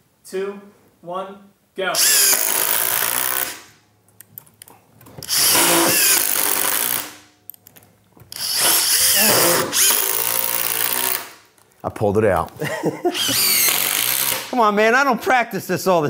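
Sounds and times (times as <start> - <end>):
impact drivers driving screws: 2.0 - 3.7, 5.1 - 11.5, 13.2 - 14.6.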